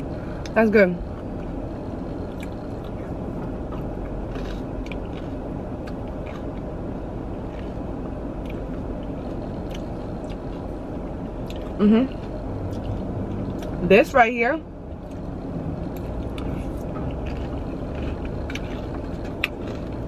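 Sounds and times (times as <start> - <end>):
car interior rumble: 0.0 - 20.0
chewing crunchy granola: 3.7 - 6.6, 7.5 - 7.8, 16.0 - 20.0.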